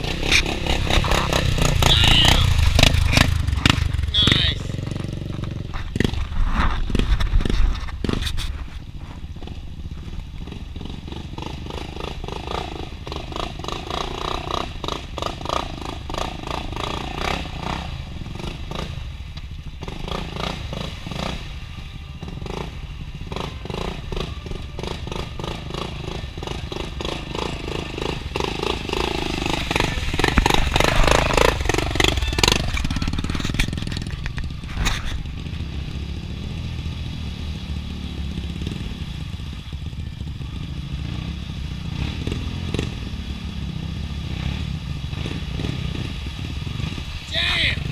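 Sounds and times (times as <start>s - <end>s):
atv engines revving: 0.0s - 47.9s
quads churning through mud: 0.0s - 47.9s.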